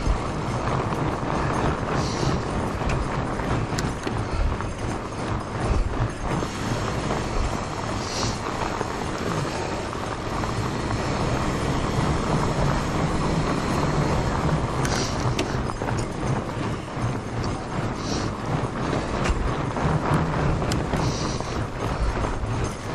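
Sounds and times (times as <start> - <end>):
clicks and rattles: 0.0 - 7.6, 13.6 - 22.9
bike tyres rumbling over snow: 0.0 - 22.9.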